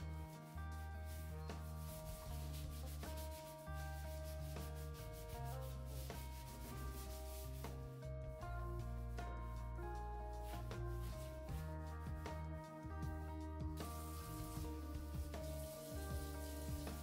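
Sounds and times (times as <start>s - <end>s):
background music with low notes: 0.0s - 17.0s
sponge scrubbing a sink: 1.1s - 7.7s, 13.8s - 17.0s.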